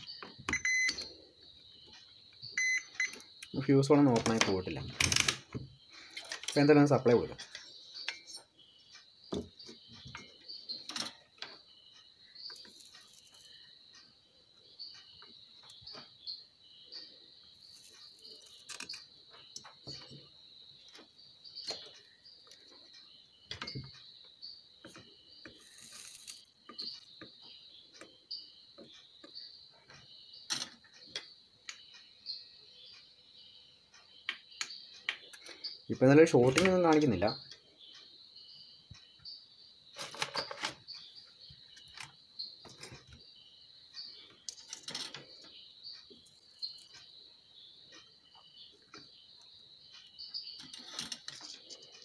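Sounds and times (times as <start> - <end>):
clicks of parts being handled: 44.5 - 45.6.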